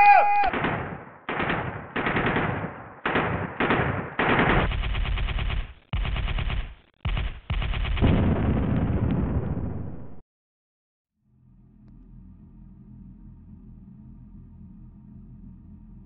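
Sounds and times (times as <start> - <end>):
automatic gunfire bursts: 0.4 - 8.1.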